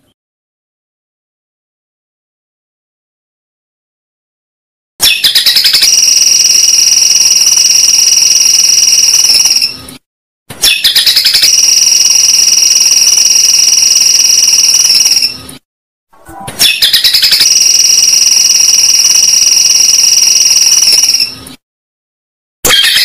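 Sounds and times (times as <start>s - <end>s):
shrill insect-like buzzing trill: 17.2s - 21.3s.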